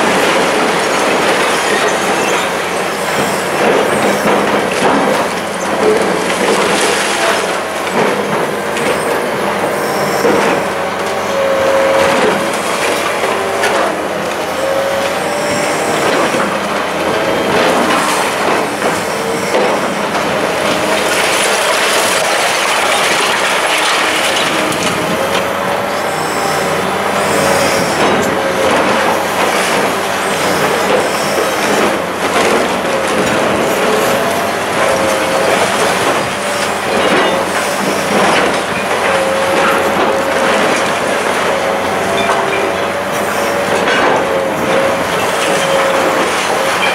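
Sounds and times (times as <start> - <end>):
excavator engine running: 0.0 - 46.9
hydraulic crusher crunching concrete: 0.0 - 46.9
short squealing tones: 8.6 - 20.1, 23.9 - 32.0.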